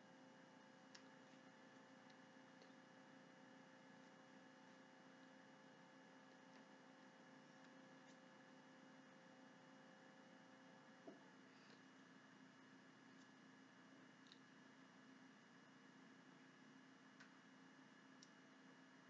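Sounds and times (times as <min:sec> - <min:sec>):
faint electrical hum: 0:00.0 - 0:19.0.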